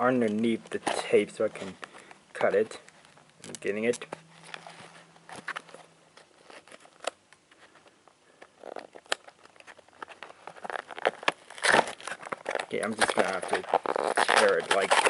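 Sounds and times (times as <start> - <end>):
scissor blade scraping tape: 10.6 - 15.0.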